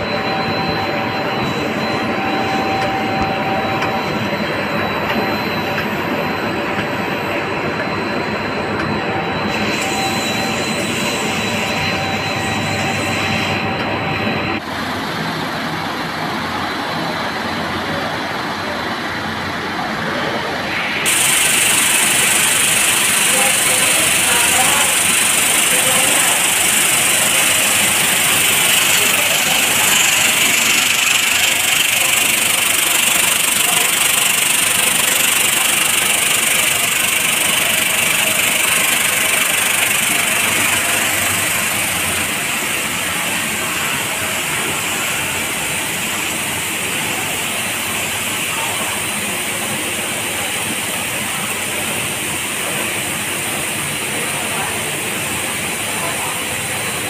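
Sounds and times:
frying machinery hissing: 20.7 - 57.0.

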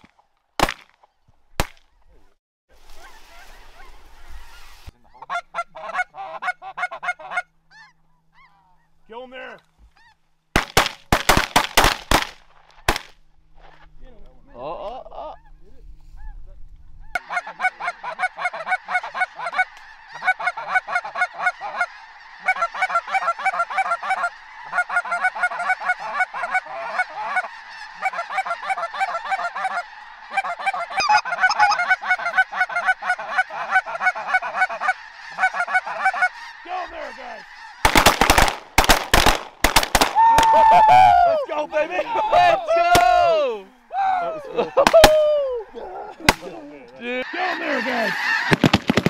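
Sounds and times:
shotgun shots: 0.6 - 1.0, 10.6 - 13.2, 37.8 - 40.2
geese calling: 2.8 - 10.4, 12.1 - 49.0.

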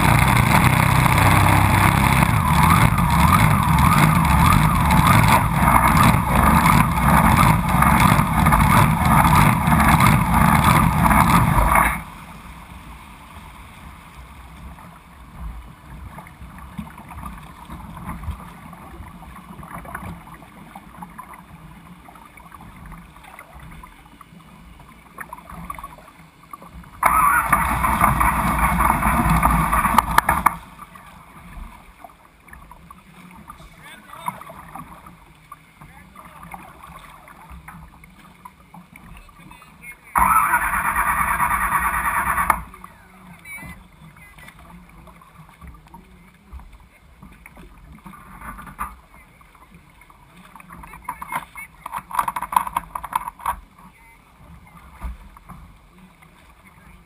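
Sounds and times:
boat engine running hard: 0.0 - 12.3, 27.0 - 31.5, 38.8 - 47.2
water sloshing: 0.0 - 57.0
wind: 0.0 - 57.0.

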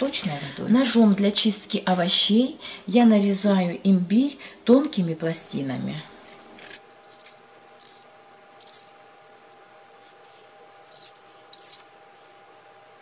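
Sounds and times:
peeler scraping ginger: 6.2 - 13.0.

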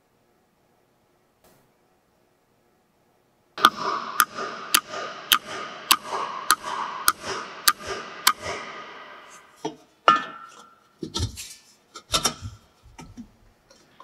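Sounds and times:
metal fan tapped onto shaft: 3.6 - 8.7.

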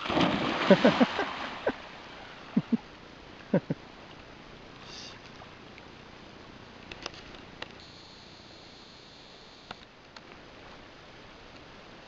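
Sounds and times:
dog splashing into river: 0.0 - 2.0.

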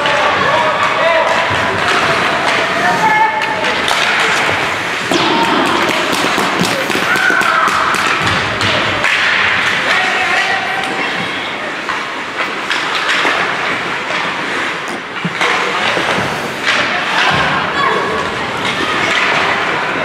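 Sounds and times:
wash of voices: 0.0 - 20.0
skates scraping on ice: 0.1 - 10.0
stick and puck knocks: 3.4 - 10.0.

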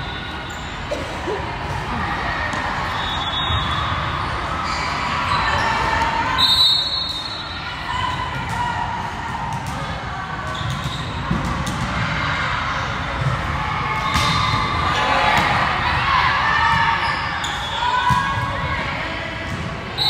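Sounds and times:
murmur of voices: 0.0 - 20.0
volleyballs bouncing and struck: 8.3 - 12.2.

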